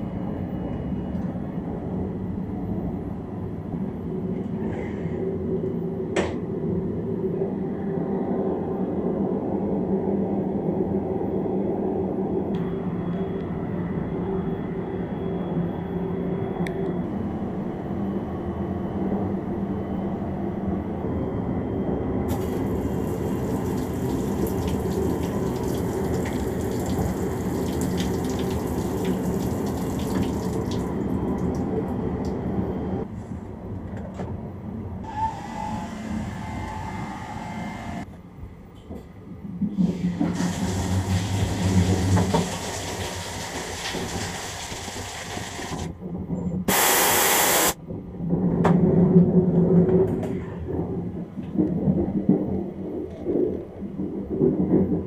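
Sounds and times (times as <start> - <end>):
train running rumble: 10.4 - 46.7, 47.7 - 55.0
shower spraying water: 22.3 - 30.8, 40.3 - 45.8, 46.7 - 47.8.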